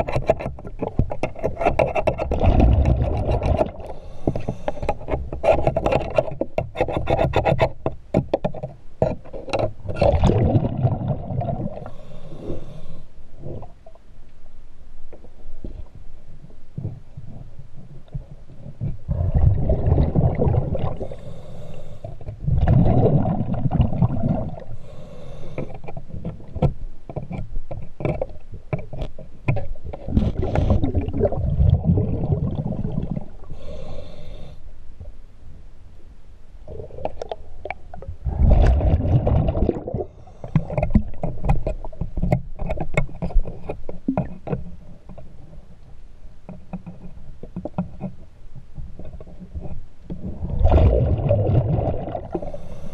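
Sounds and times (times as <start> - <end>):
sharp clicks and knocks: 0.0 - 10.2, 25.6 - 30.7, 40.4 - 45.3
exhaled bubbles rumbling: 2.0 - 3.9, 9.8 - 11.9, 16.8 - 21.2, 22.3 - 24.8, 29.8 - 33.5, 36.6 - 42.0, 50.1 - 52.6
regulator hiss on inhale: 3.8 - 5.1, 11.8 - 13.6, 21.0 - 22.4, 24.6 - 26.1, 33.4 - 34.8, 40.0 - 40.9, 52.3 - 52.9.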